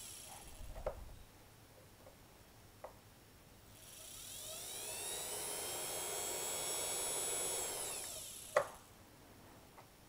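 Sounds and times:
spindle motor whining: 3.9 - 8.6.

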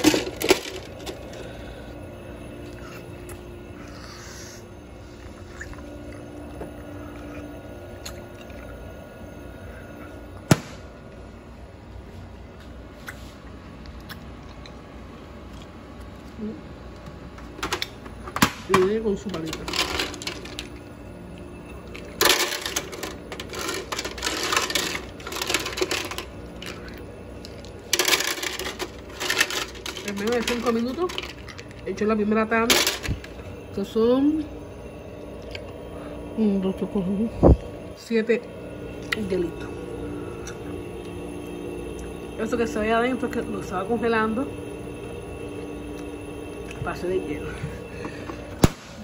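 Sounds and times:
ice maker humming: 0.0 - 49.0
ice cubes rattling in plastic scoop: 22.2 - 26.9, 27.5 - 31.9.

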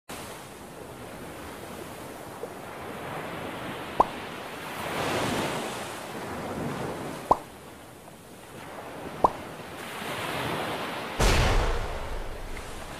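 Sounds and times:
ocean waves washing: 0.1 - 12.9
short plop: 7.3 - 7.5.

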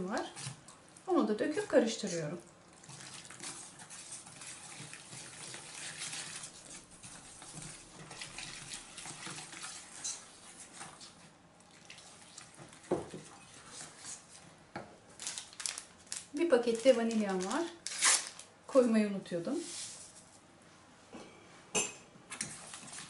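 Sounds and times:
whisk stirring against pan: 1.5 - 14.5.

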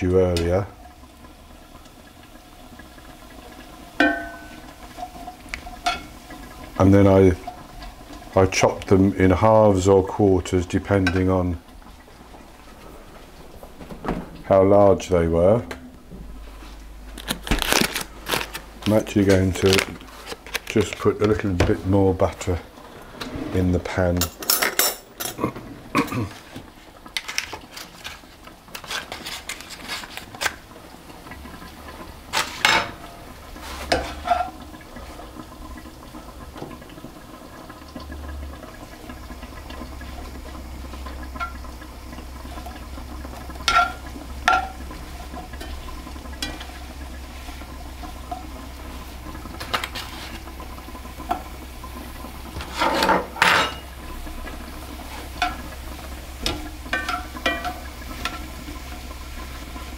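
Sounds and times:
mushrooms frying in butter: 0.0 - 14.0, 16.8 - 23.1, 24.2 - 59.9
metal spatula scraping a pan: 33.6 - 34.6, 43.6 - 44.8, 52.6 - 53.8.

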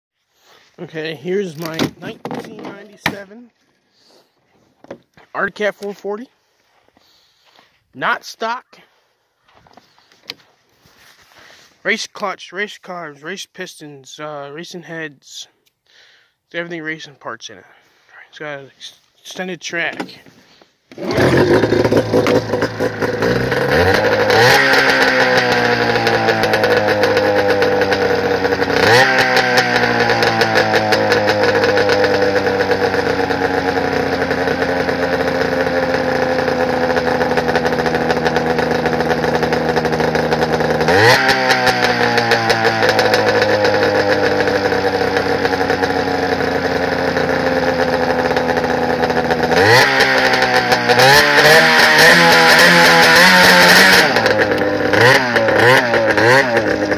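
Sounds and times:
snowmobile engine revving: 20.9 - 56.9.

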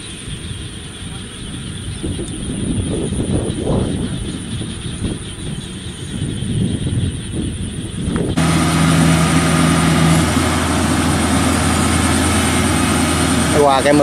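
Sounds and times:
harvester diesel engine running: 8.3 - 14.0.

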